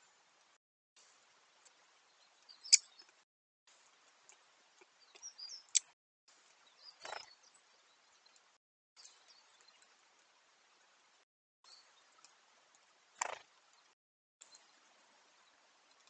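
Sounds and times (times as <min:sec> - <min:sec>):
faint steady hiss: 0:00.0 - 0:16.0
woodpecker high chirps: 0:02.5 - 0:03.0.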